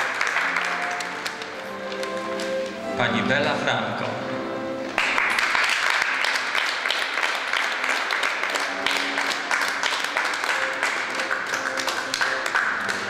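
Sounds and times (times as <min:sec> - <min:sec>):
audience applause: 0:00.0 - 0:02.3, 0:05.0 - 0:13.0.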